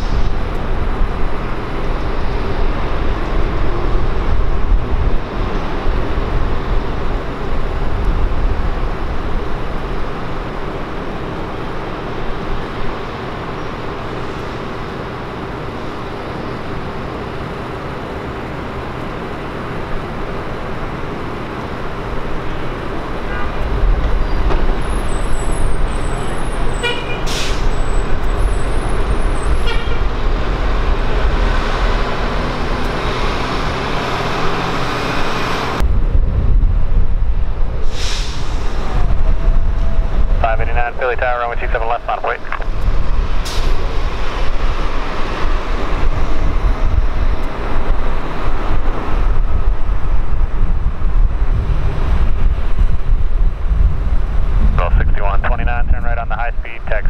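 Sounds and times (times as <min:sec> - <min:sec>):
low engine rumble: 0:35.7 - 0:57.0.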